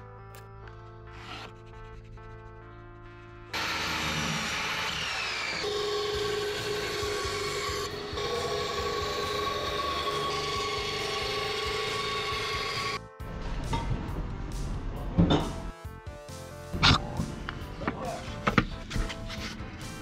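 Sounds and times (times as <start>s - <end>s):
bandsaw cutting wood: 1.1s - 1.6s, 3.5s - 13.0s
miter saw cutting wood: 3.5s - 13.0s.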